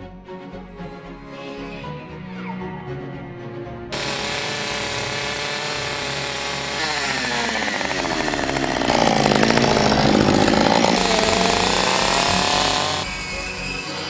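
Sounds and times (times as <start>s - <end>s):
chainsaw revving and cutting wood: 3.9s - 14.0s.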